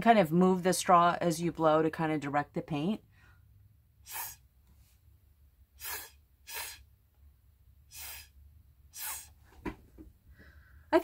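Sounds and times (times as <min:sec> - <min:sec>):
puffs of breath through a straw: 0:04.0 - 0:05.0, 0:05.7 - 0:06.9, 0:07.9 - 0:09.4.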